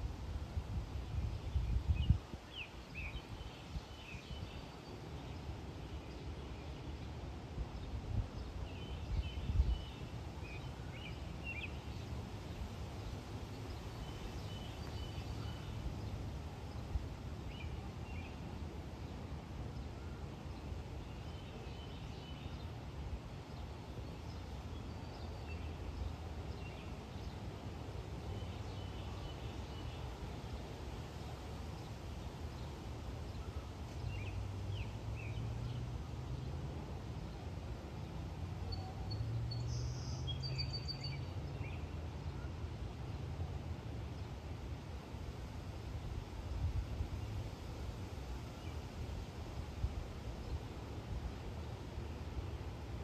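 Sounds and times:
small birds chirping: 7.8s - 18.5s.

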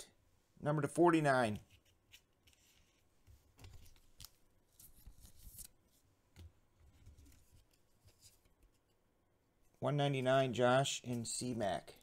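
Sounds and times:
trading cards being shuffled: 1.6s - 5.8s.

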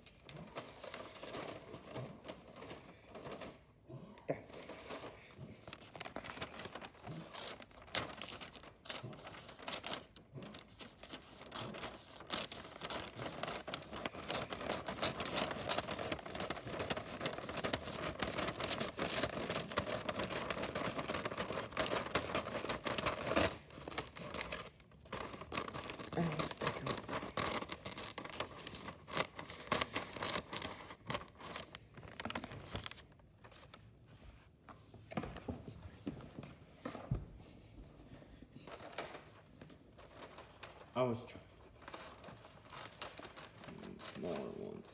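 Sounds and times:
wrapping paper crinkling: 0.0s - 3.9s, 4.5s - 34.5s, 38.6s - 44.9s.

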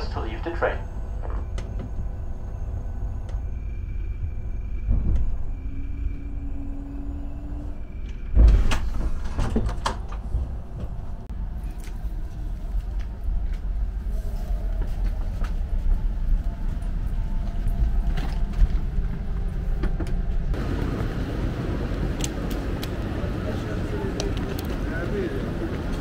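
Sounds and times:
steady low rumble: 0.0s - 26.0s
door clunking and knocking: 8.3s - 11.0s.

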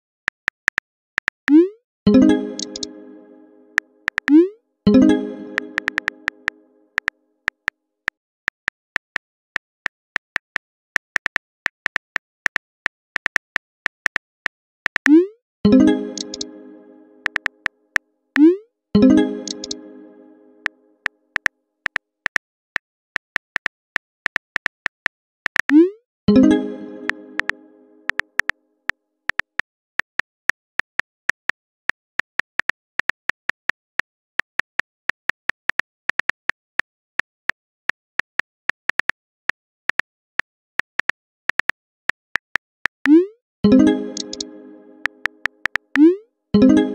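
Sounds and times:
phone keyboard clicks: 2.6s - 2.9s, 4.1s - 4.4s, 17.2s - 17.5s, 19.4s - 19.8s, 44.2s - 46.1s.

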